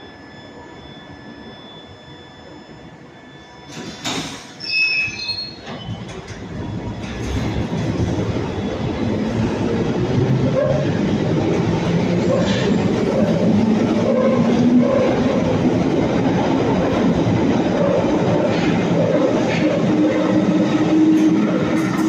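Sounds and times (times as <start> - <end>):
brief high squeals: 3.4 - 6.0
train wheels rumbling on rails: 5.5 - 22.0.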